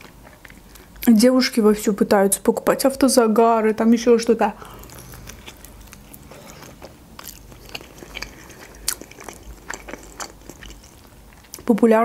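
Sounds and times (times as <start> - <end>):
chewing crunchy fried dough: 0.0 - 1.2, 4.5 - 11.8.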